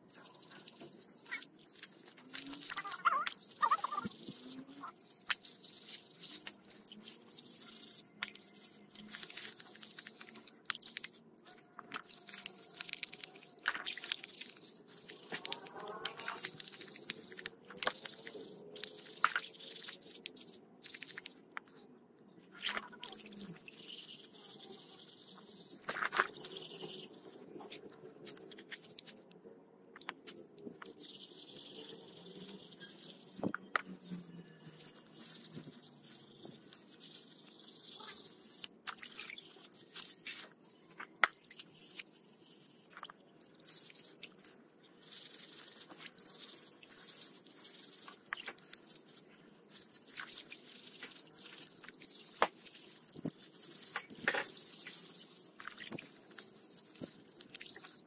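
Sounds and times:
wire brush scrubbing: 0:00.0 - 0:11.2, 0:12.0 - 0:21.4, 0:23.4 - 0:29.2, 0:30.8 - 0:40.6
water splashing and dripping: 0:00.0 - 0:21.5, 0:30.8 - 0:58.0.

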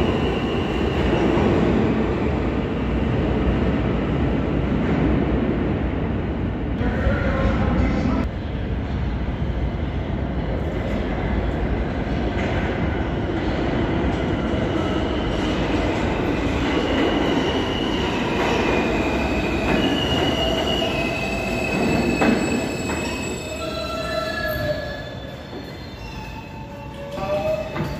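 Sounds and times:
subway train rumbling: 0:00.0 - 0:27.9
train wheels squealing: 0:16.7 - 0:27.9.

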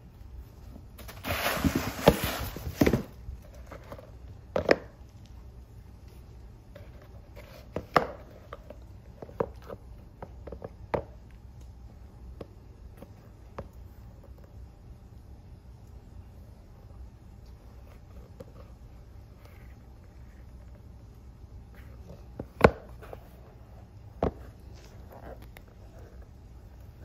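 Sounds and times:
paper wrapping rustling: 0:01.0 - 0:03.7.

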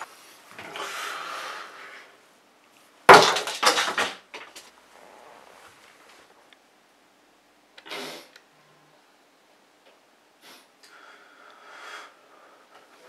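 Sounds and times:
objects clattering: 0:03.1 - 0:04.7.

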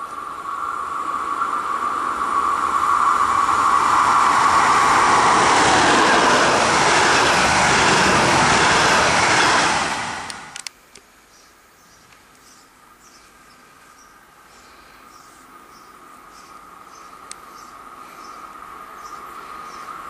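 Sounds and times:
steady high tone: 0:00.0 - 0:10.6
train wheels rumbling on rails: 0:00.0 - 0:10.6.

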